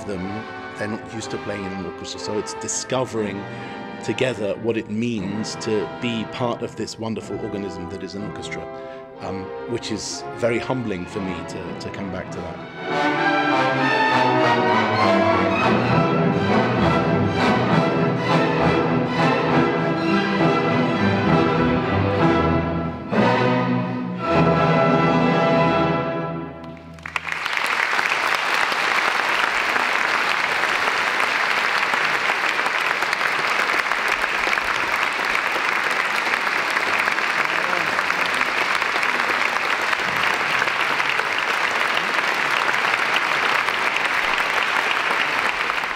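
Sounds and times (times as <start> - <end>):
orchestra playing closing chords: 0.0 - 45.9
audience applause: 26.7 - 45.9.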